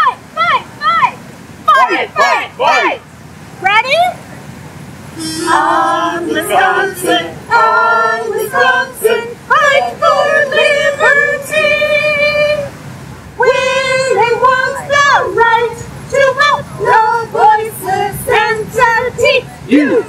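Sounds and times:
women singing held notes: 1.7s - 3.0s, 5.2s - 20.0s.

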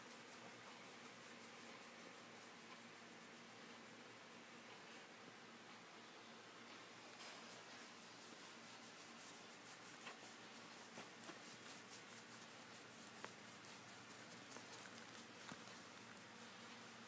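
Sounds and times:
fingers scratching in fur: 7.1s - 17.0s.

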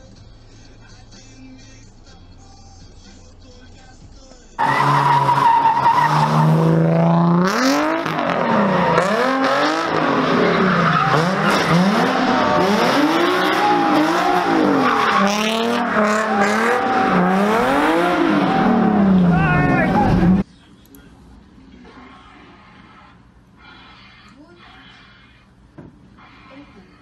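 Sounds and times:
tyres squealing: 4.6s - 6.8s, 7.5s - 20.4s
car engine revving hard: 4.6s - 20.4s.

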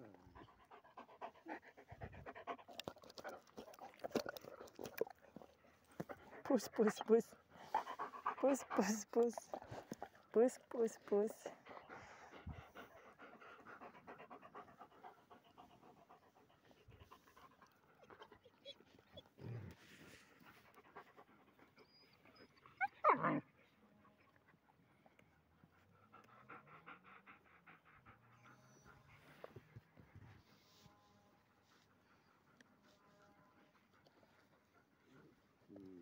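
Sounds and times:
dog panting: 0.1s - 19.4s, 25.4s - 30.6s.

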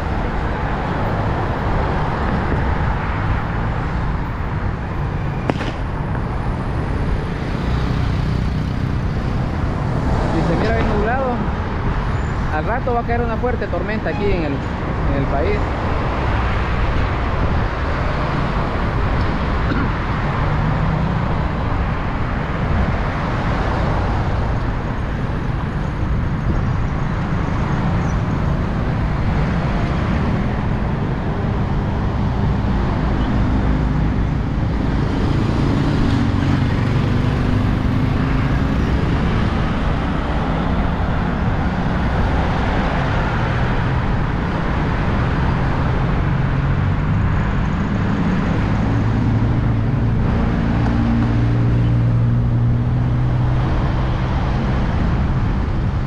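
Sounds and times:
engine hum: 14.4s - 56.0s.

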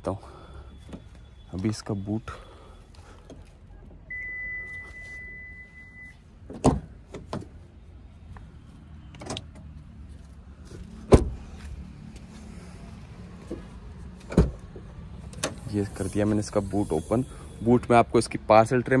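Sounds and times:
car door beep: 4.1s - 6.2s
car door slam: 6.5s - 7.5s, 11.0s - 11.4s.

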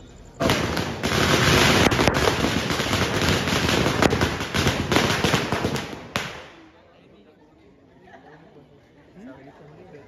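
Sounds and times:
firecrackers crackling: 0.3s - 6.8s.

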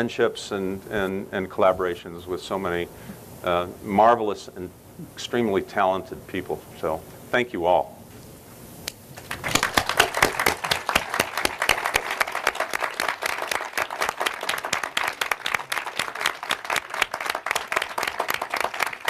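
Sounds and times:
audience clapping: 9.2s - 19.0s.

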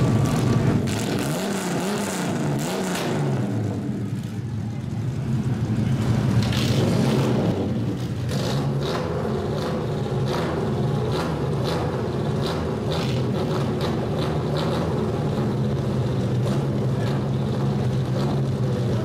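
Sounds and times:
car engine idling: 0.0s - 2.6s, 3.2s - 19.0s.

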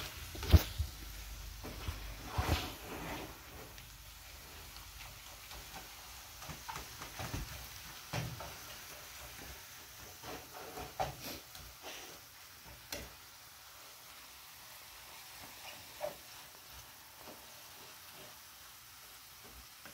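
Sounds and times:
meat sizzling in a skillet: 0.0s - 19.9s
spatula scraping and knocking pan: 4.8s - 12.0s, 15.3s - 18.5s.

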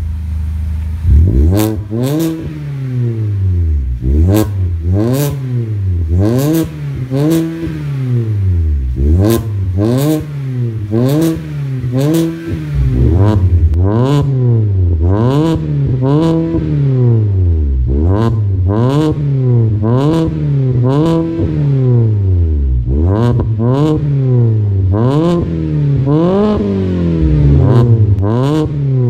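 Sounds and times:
car engine revving: 0.0s - 29.0s
exhaust crack: 0.0s - 29.0s.

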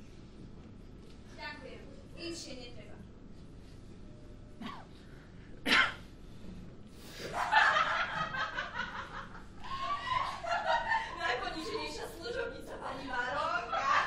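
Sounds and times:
audience laughing: 7.3s - 11.8s.

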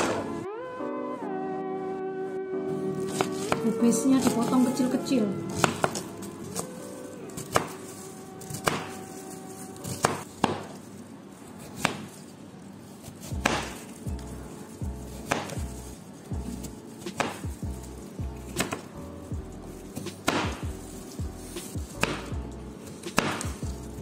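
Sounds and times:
knife chopping on cutting board: 3.0s - 3.6s, 5.5s - 6.7s, 7.4s - 9.1s, 9.8s - 10.8s, 11.6s - 12.2s, 13.0s - 14.0s, 15.1s - 17.8s, 18.4s - 18.9s, 20.0s - 23.8s.

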